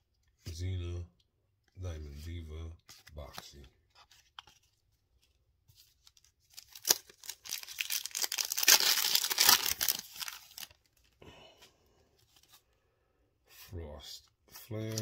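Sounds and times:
foil pack tearing and crinkling: 6.6 - 10.7.

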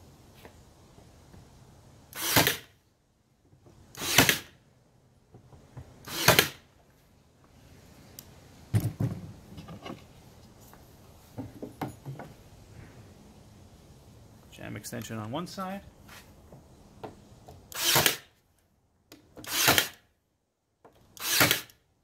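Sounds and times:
nail gun firing: 2.1 - 2.7, 4.0 - 4.6, 6.0 - 6.6, 17.7 - 18.3, 19.4 - 20.0, 21.2 - 21.8.

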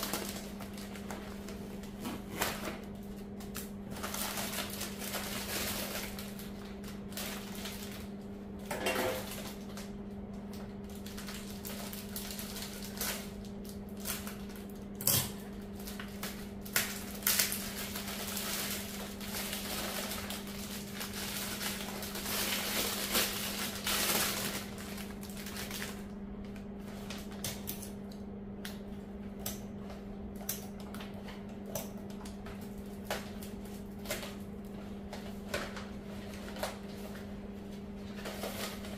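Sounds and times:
paper and cellophane crinkling: 0.0 - 27.7, 32.2 - 38.9
steady low hum: 0.0 - 38.9
things set down on countertop: 8.7 - 9.3.

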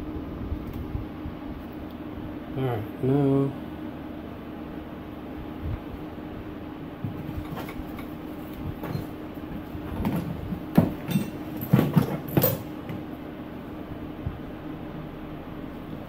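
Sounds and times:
steady low hum: 0.0 - 16.0
metal tools clanking and rattling: 8.8 - 9.2, 9.9 - 13.0.

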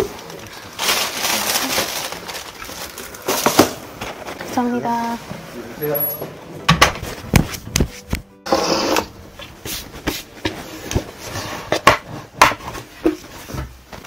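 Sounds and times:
background music: 4.7 - 11.8.

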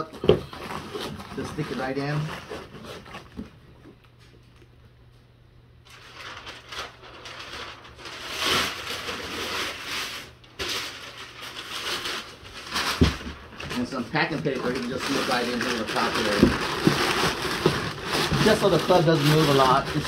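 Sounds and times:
packing material rustling in a box: 0.4 - 3.4, 5.9 - 20.0.

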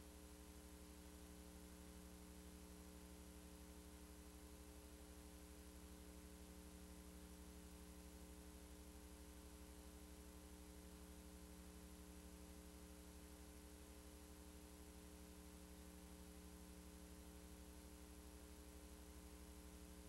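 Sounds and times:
faint electrical hum with hiss: 0.0 - 20.0.

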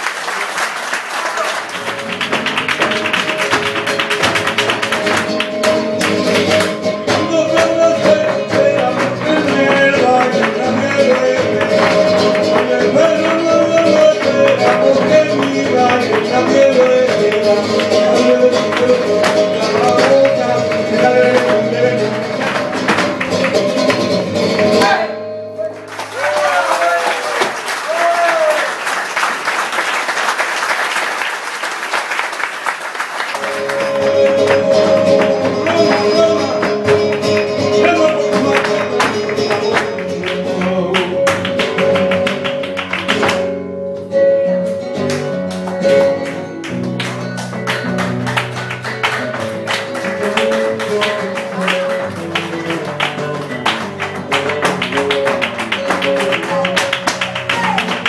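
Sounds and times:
applause: 0.0 - 6.8, 22.3 - 24.1, 25.6 - 36.2, 37.0 - 43.5, 45.4 - 58.0
rhythmic hand-clapping: 0.0 - 43.6, 44.7 - 58.0
guitar playing: 1.7 - 26.1, 33.4 - 58.0
footwork taps: 2.0 - 6.8.

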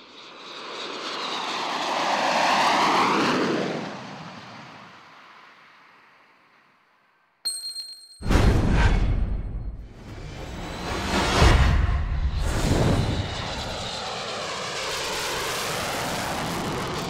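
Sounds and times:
aircraft flying past: 0.0 - 6.3, 9.5 - 17.0
bright ping: 7.4 - 8.6.

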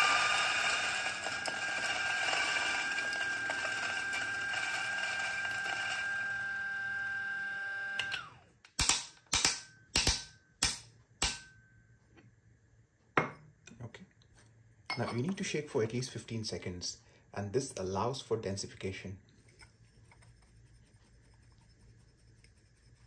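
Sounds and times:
coffee grinder whining: 0.0 - 8.4.

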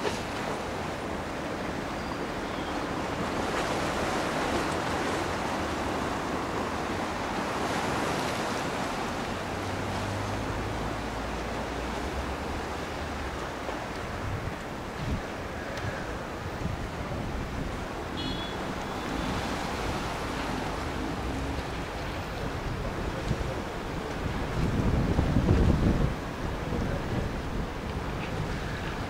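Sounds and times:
choppy sea: 0.0 - 29.0
wind on microphone: 11.6 - 29.0.

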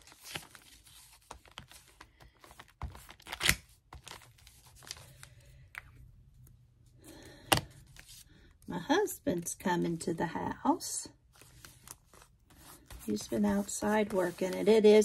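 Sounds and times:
paper rustling: 11.3 - 15.0.

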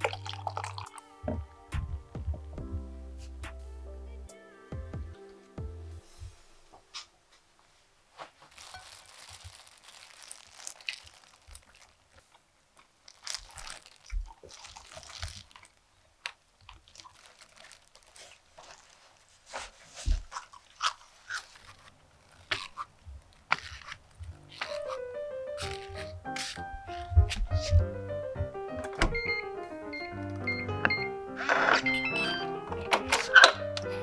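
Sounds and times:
crunchy food chewing: 0.0 - 1.1, 8.5 - 19.4, 20.1 - 25.0, 25.6 - 27.8.

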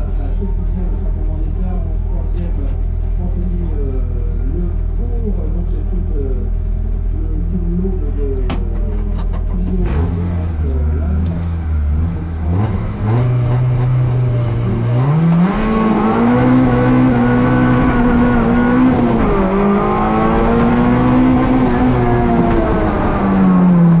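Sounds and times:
car engine accelerating hard: 8.0 - 24.0.

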